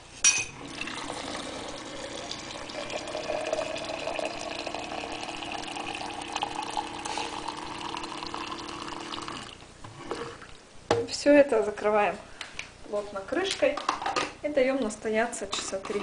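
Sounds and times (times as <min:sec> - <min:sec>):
boiling water pouring into flask: 0:00.6 - 0:09.6.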